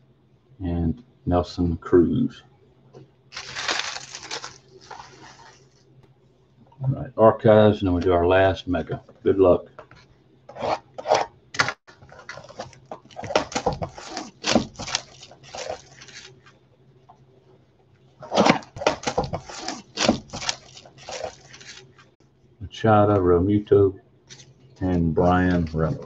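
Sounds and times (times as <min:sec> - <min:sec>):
cardboard packaging tearing: 0:03.3 - 0:05.8, 0:12.2 - 0:16.4, 0:18.2 - 0:22.0.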